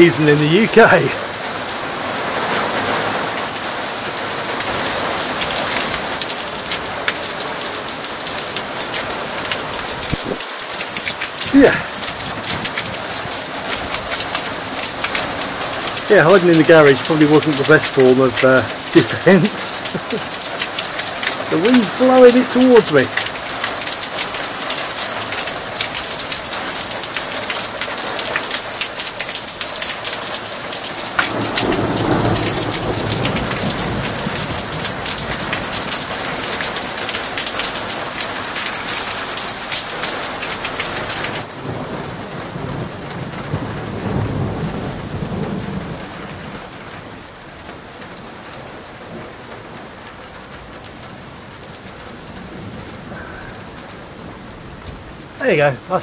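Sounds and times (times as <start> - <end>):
heavy rain pouring: 0.0 - 56.0
thunder rumbling: 31.2 - 36.0.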